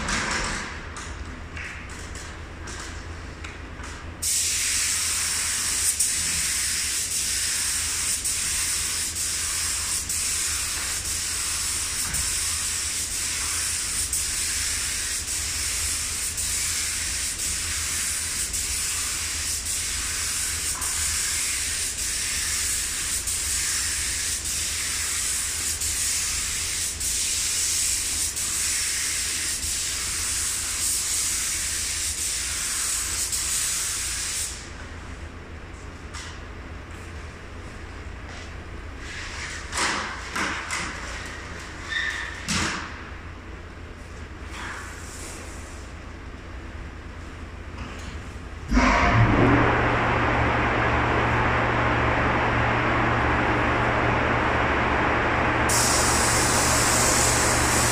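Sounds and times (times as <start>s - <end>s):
paint spray gun hissing: 55.7s - 57.9s.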